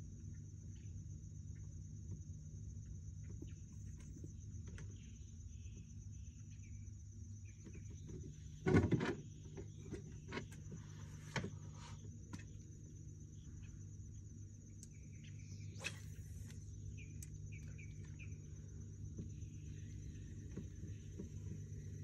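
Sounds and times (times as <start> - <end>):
low steady hum: 0.0 - 22.0
high-pitched insect buzz: 13.3 - 22.0
bird chirps: 14.7 - 21.2.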